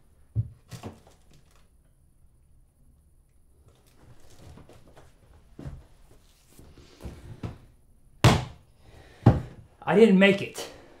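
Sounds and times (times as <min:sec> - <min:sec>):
rustling: 0:03.6 - 0:07.1.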